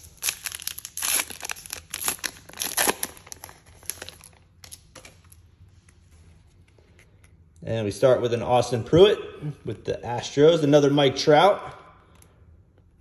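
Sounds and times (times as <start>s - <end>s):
plastic wrapper tearing and crinkling: 0.0s - 5.4s.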